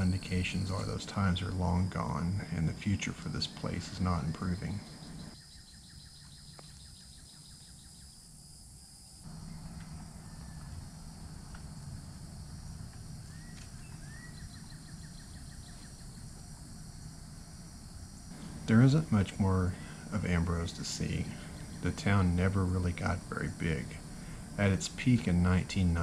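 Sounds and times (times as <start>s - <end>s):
bird chirps: 0.0s - 1.6s, 2.8s - 8.2s, 13.2s - 16.4s, 18.9s - 22.8s
insects droning: 0.0s - 26.0s.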